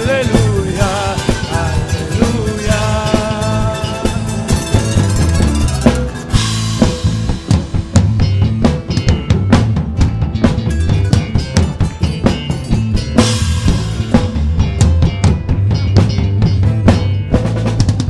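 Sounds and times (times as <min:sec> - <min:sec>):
person singing: 0:00.0 - 0:05.1
drum strikes: 0:00.0 - 0:18.0
folk band playing: 0:00.0 - 0:18.0.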